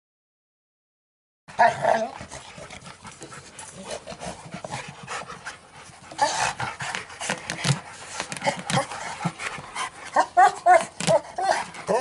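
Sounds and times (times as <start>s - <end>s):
dog vocalisations: 1.5s - 4.7s, 6.1s - 6.9s, 8.2s - 12.0s
dogs panting: 1.5s - 12.0s
dogs chewing and tugging tyre: 1.6s - 12.0s
knocks and scrapes: 2.6s - 10.0s.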